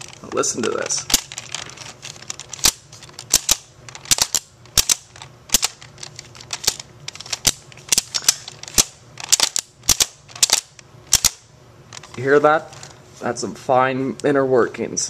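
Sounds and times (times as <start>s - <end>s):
plastic toy belt clicking: 0.0s - 11.4s.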